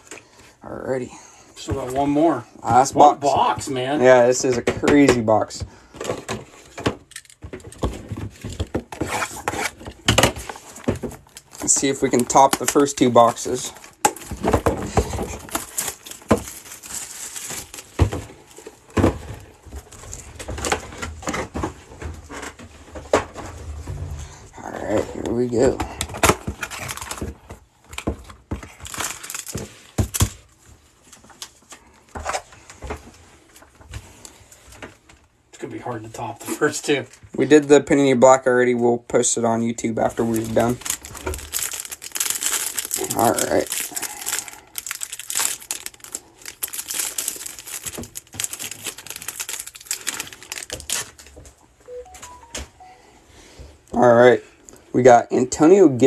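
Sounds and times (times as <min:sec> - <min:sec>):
cardboard and plastic wrap tearing: 0:08.2 - 0:18.7, 0:26.2 - 0:27.4, 0:28.6 - 0:30.4, 0:40.0 - 0:51.4.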